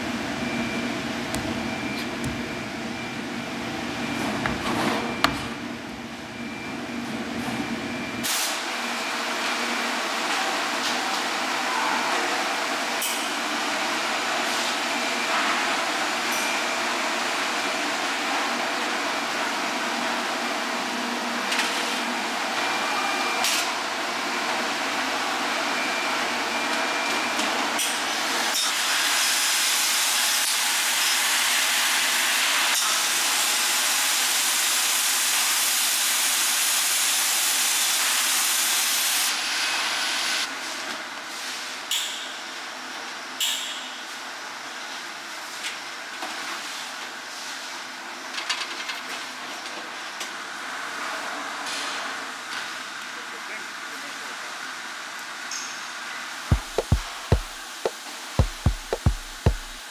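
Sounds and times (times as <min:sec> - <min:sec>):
low machine hum: 0:00.0 - 0:08.2.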